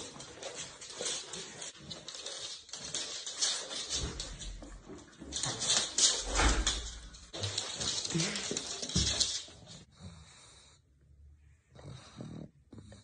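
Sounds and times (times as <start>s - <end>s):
claws clicking on wooden floor: 0.0s - 9.8s
dogs snuffling and sniffing: 0.0s - 10.8s.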